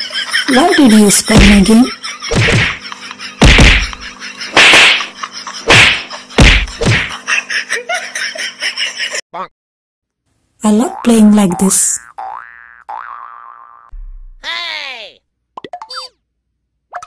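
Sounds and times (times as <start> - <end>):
cartoon punch and slap effects: 2.3 - 2.8, 3.4 - 7.1.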